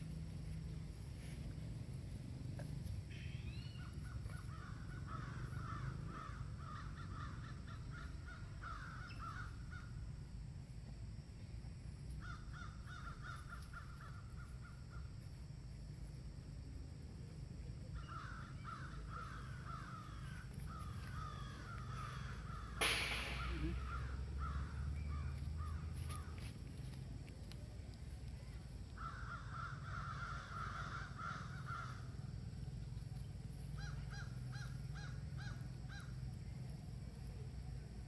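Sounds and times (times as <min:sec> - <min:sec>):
sharp click: 0:22.8 - 0:23.8.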